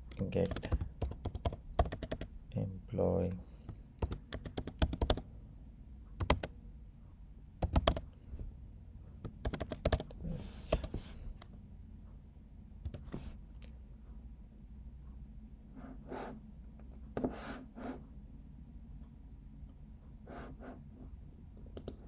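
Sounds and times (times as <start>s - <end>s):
keyboard typing: 0.1s - 2.3s, 4.0s - 5.2s, 6.2s - 6.5s, 7.6s - 8.1s, 9.2s - 11.0s, 12.8s - 13.7s, 21.7s - 22.0s.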